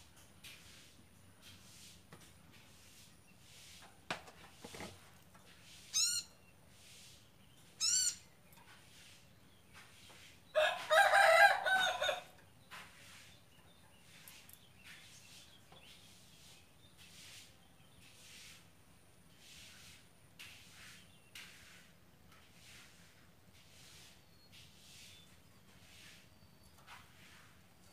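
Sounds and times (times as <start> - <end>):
birds calling: 5.8 - 10.3.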